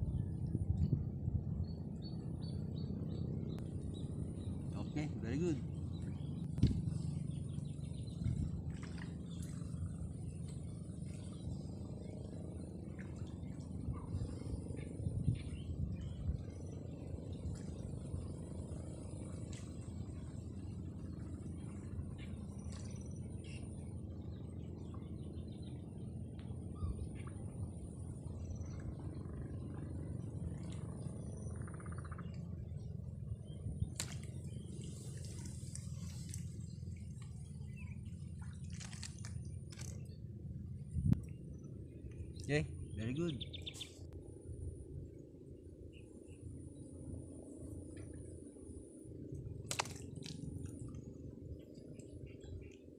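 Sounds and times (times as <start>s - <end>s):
wind on microphone: 0.0s - 3.6s, 6.3s - 9.6s, 13.6s - 17.8s, 40.8s - 41.4s
steady low rumble: 0.0s - 52.9s
fish splashing: 38.4s - 40.1s, 49.5s - 51.0s.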